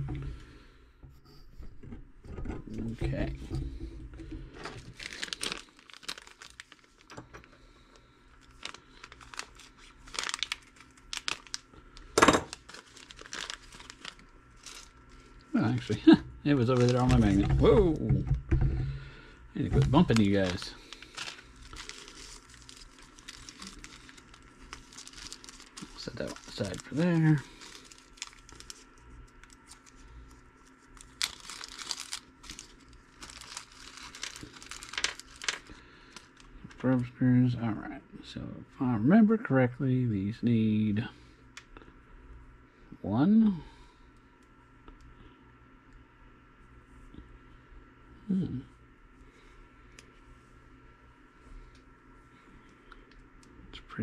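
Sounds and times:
plastic bag crinkling: 3.1s - 18.0s, 19.6s - 36.8s.

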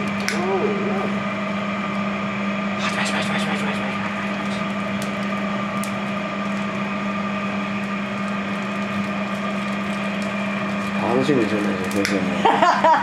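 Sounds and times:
charcoal crackling: 0.0s - 2.8s, 3.8s - 12.4s
low hum and hiss: 10.2s - 13.0s.

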